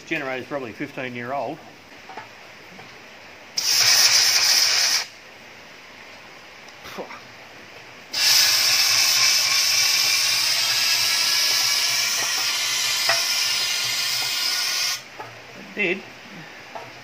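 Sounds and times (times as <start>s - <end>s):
compressed air hissing: 3.6s - 5.2s, 8.1s - 15.1s.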